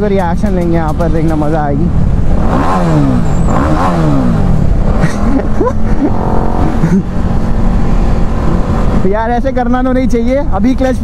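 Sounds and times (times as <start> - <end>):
motorcycle engine revving: 0.0 - 9.9.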